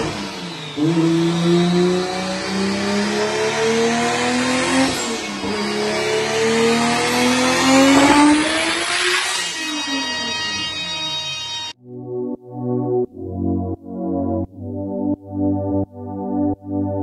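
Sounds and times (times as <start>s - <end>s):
car engine revving at full throttle: 0.0s - 9.3s.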